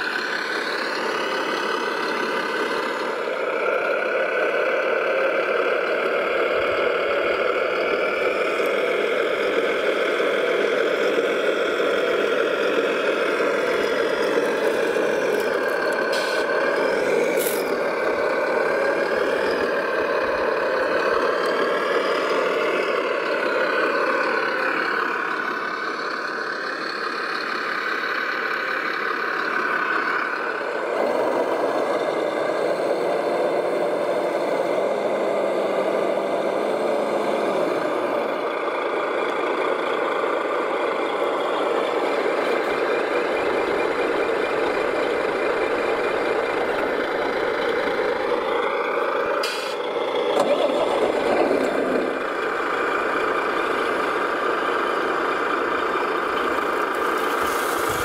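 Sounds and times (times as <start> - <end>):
toy truck engine sound: 0.0 - 58.0
sharp hiss: 57.3 - 58.0.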